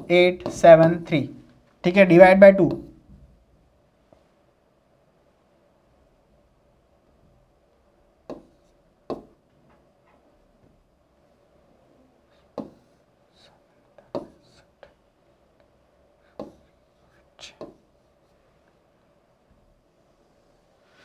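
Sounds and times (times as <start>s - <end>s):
faint steady hum: 0.0s - 21.0s
pen tapping on board: 8.3s - 9.4s, 12.6s - 12.8s, 14.1s - 14.4s, 16.4s - 16.7s
pen strokes on board: 16.4s - 16.8s.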